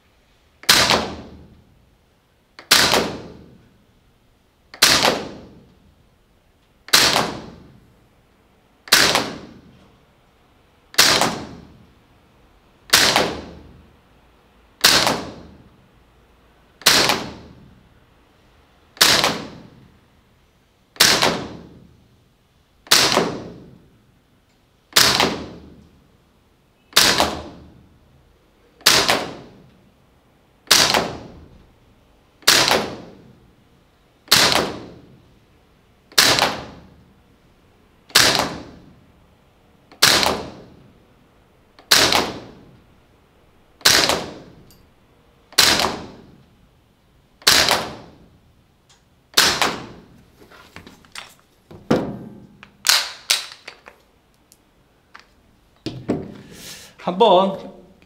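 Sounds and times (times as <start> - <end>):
airsoft rifle shots: 0.6 - 1.6, 2.6 - 3.7, 4.7 - 5.7, 6.9 - 7.8, 8.8 - 9.8, 10.9 - 11.9, 12.9 - 13.9, 14.8 - 15.7, 16.8 - 17.8, 19.0 - 20.0, 21.0 - 22.0, 22.8 - 23.9, 24.9 - 26.0, 26.9 - 27.8, 28.8 - 29.7, 30.6 - 31.6, 32.4 - 33.4, 34.2 - 35.3, 36.1 - 37.1, 38.1 - 39.0, 39.9 - 40.9, 41.8 - 42.8, 43.8 - 44.7, 45.5 - 46.4, 47.4 - 48.4, 49.3 - 50.2, 51.9 - 53.8.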